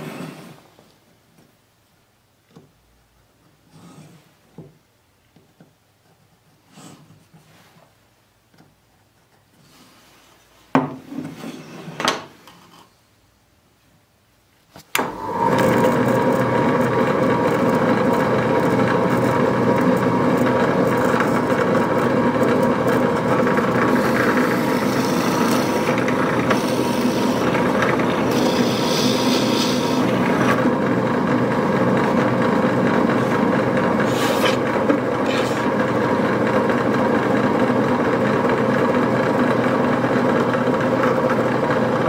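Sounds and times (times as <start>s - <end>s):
drill press boring into wood: 15.0s - 42.0s
wood knocking and scraping: 23.5s - 30.6s.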